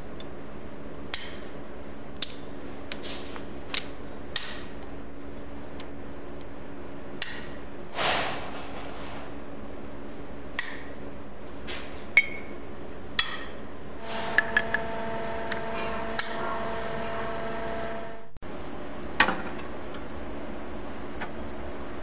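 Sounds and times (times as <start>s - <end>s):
steady hum: 0.0s - 22.0s.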